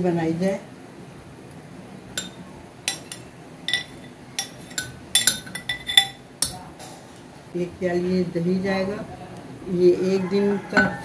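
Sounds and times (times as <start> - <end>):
metal spoon clinking against glass: 2.2 - 6.6.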